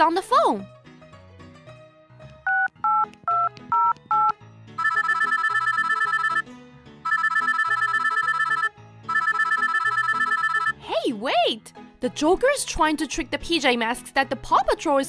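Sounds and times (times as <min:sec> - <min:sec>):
soft background music: 0:00.0 - 0:15.0
two-tone keypad beeps: 0:02.5 - 0:06.4, 0:07.1 - 0:10.7
trilling phone ringtone: 0:02.5 - 0:10.8.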